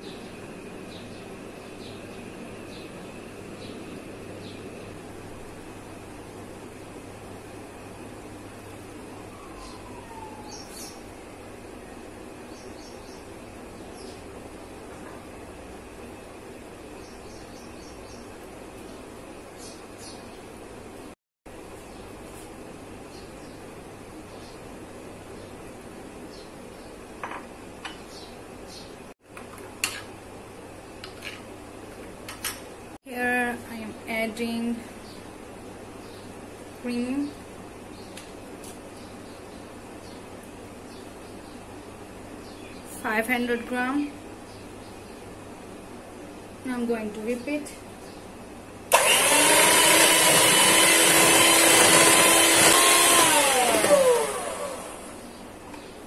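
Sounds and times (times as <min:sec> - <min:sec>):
electric hand mixer whine: 0:48.9 - 0:55.2.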